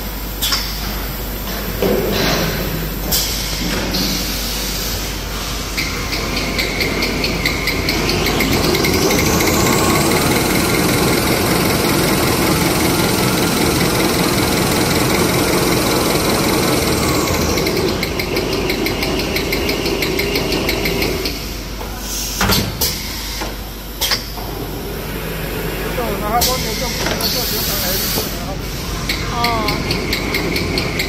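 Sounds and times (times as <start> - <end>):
machine running noise: 0.0 - 31.0
machine whine: 5.8 - 21.4.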